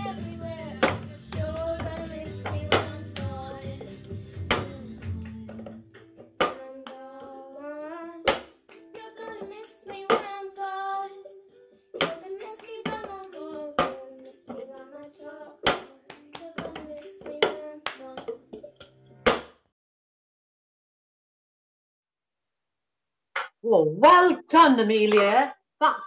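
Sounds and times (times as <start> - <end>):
girl singing: 0.0 - 5.6, 6.3 - 18.6
hands clapping: 0.0 - 7.4, 8.3 - 10.3, 12.0 - 18.3
cup knocking on tabletop: 4.5 - 6.6.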